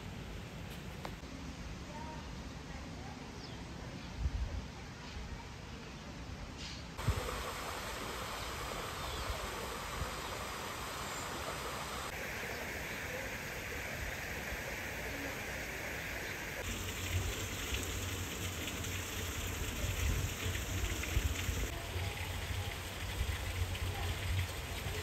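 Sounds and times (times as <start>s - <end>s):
water trickling from small waterfall: 7.0s - 25.0s.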